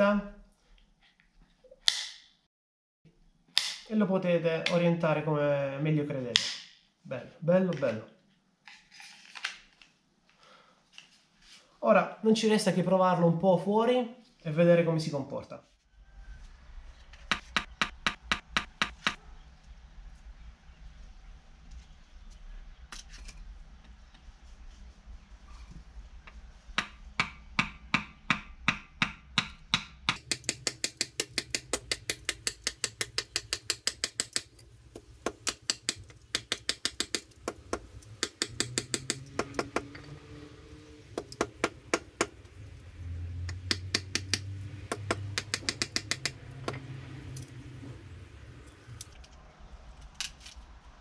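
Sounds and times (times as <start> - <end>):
wooden baton knocking on knife: 43.5 - 46.8.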